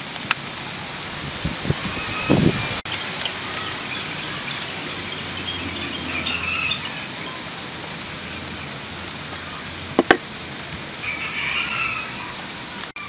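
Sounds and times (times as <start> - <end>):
rain-like background hiss: 0.0 - 13.0.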